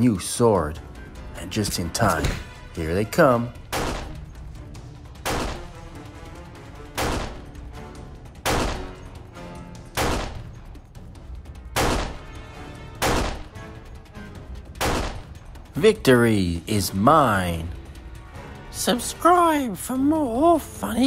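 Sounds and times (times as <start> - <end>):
light background music: 0.0 - 21.0
gunshots: 3.7 - 4.2, 5.2 - 5.8, 6.9 - 7.6, 8.4 - 9.1, 9.9 - 10.5, 11.7 - 13.6, 14.8 - 15.4.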